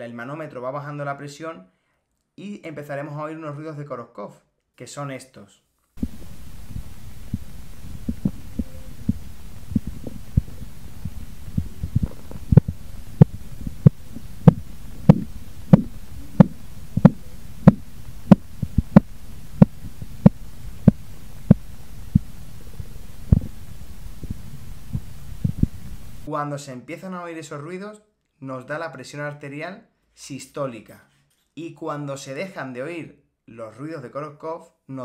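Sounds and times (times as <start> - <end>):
steady low rumble: 6.0 - 26.3
pulse taps through stethoscope: 9.8 - 21.6.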